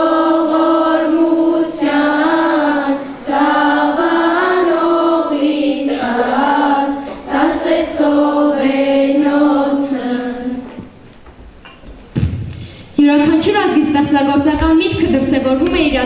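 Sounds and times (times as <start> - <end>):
children singing in unison: 0.0 - 11.0.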